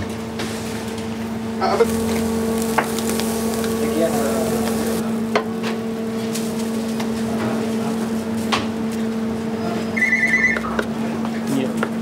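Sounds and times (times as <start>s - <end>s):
electrical hum: 0.0s - 12.0s
fast high electronic beeps: 10.0s - 10.6s.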